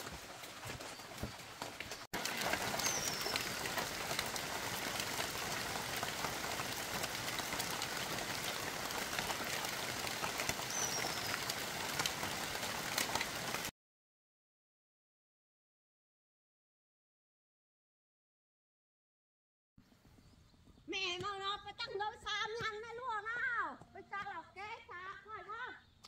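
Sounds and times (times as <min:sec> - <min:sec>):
steady rain: 0:00.0 - 0:13.7.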